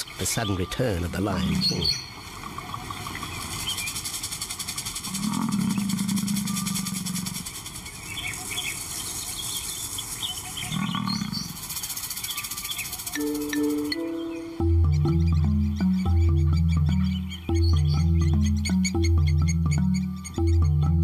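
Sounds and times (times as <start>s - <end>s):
bird chirps: 0.0s - 21.0s
lion calling: 0.6s - 2.0s, 5.1s - 7.6s, 10.6s - 11.6s
high-pitched buzzing: 13.2s - 17.0s.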